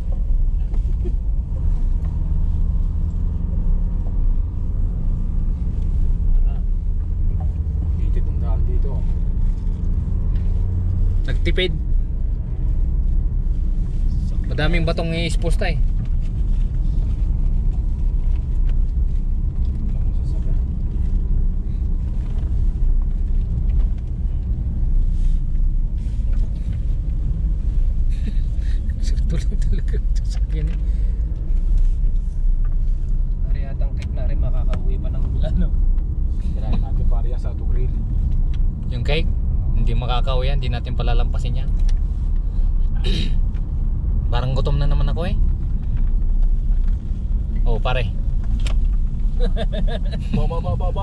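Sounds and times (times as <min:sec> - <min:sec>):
road rumble: 0:00.0 - 0:51.0
vehicle engine drone: 0:00.0 - 0:51.0.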